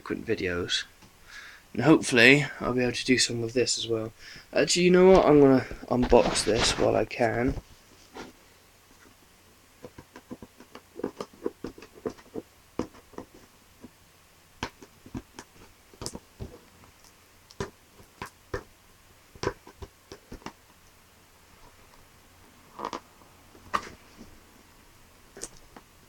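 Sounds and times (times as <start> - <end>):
fingers opening cardboard box: 9.8 - 13.5, 19.4 - 20.6.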